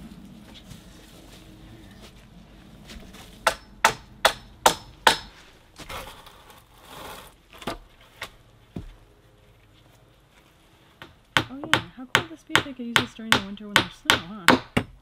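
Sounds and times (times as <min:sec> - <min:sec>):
hatchet chopping wood: 0:03.4 - 0:05.4, 0:11.0 - 0:15.0.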